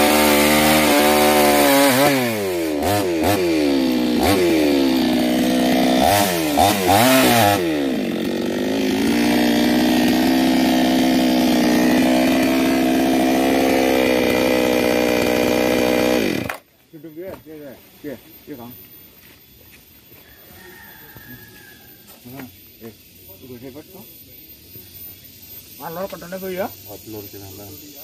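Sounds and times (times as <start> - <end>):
chainsaw cutting log: 0.0 - 16.7.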